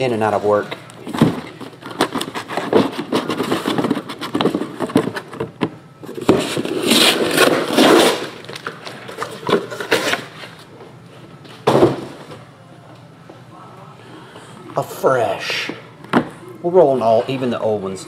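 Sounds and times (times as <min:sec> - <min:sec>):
cardboard scraping: 0:01.1 - 0:05.5, 0:06.1 - 0:08.5.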